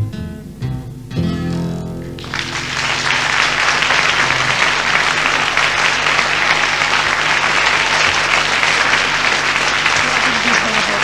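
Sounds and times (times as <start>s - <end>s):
guitar and double bass notes: 0.0s - 10.0s
audience applauding: 2.2s - 11.0s.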